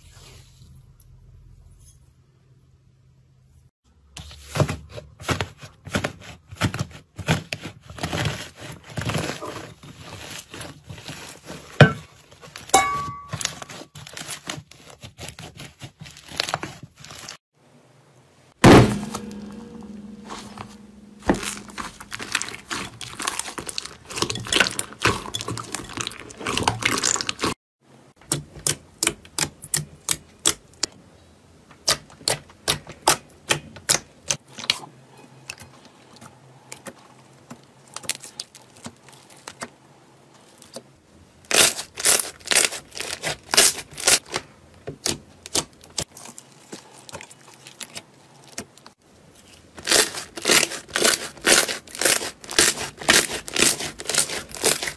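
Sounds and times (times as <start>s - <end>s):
slime squeezed wet crackle: 21.4s - 27.6s, 49.8s - 54.9s.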